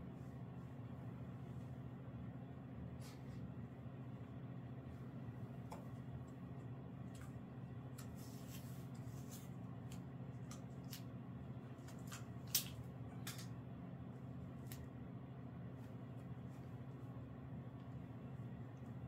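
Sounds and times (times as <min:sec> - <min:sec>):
steady low hum: 0:00.0 - 0:19.0
rustling of bandaging materials: 0:08.0 - 0:11.1.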